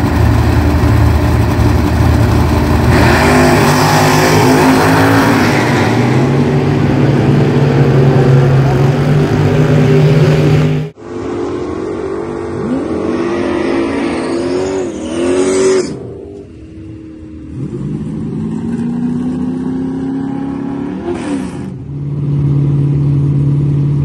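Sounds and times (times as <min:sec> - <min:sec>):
engine revving: 0:00.0 - 0:24.0
race cars accelerating at full throttle: 0:00.0 - 0:24.0.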